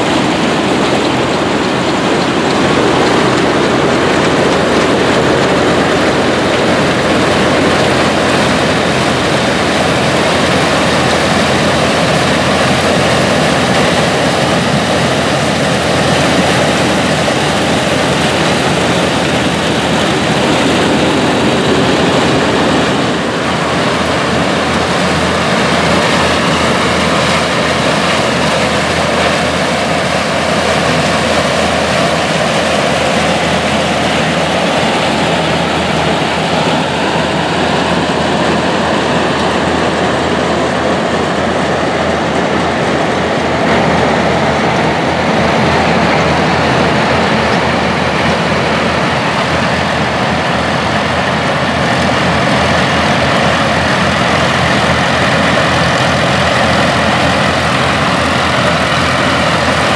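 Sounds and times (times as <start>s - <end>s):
corn picker machinery running: 0.0s - 59.9s
tractor engine drone: 0.0s - 59.9s.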